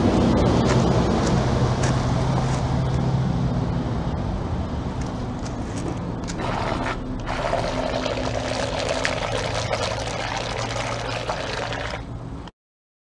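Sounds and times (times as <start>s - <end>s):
low steady motor hum: 0.0s - 12.5s
model boat propeller churning: 5.6s - 12.2s.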